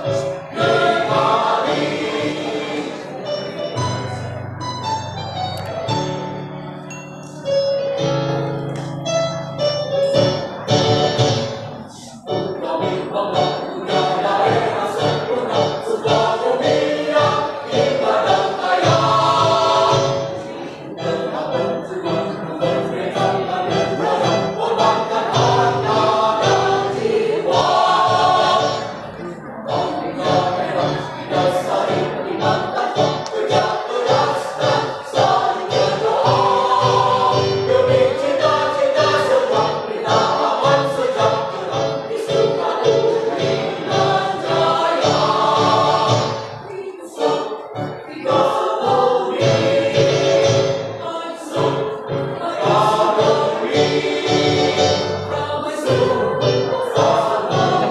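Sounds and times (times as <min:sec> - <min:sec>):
mixed choir singing a march: 0:00.0 - 0:04.1, 0:10.8 - 0:57.9.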